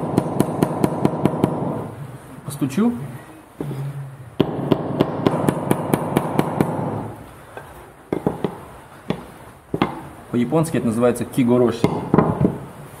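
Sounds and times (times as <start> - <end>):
hammer tapping wood: 8.1 - 10.1, 11.8 - 12.6.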